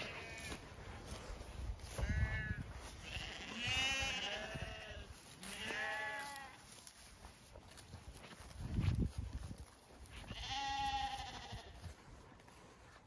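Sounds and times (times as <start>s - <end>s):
sheep bleating: 0.0s - 0.6s, 1.8s - 6.7s, 10.1s - 11.9s.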